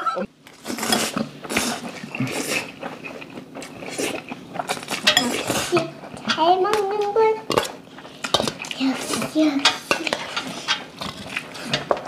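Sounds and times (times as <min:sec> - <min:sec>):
noodles being slurped and chewed: 0:00.6 - 0:06.2, 0:10.0 - 0:11.9.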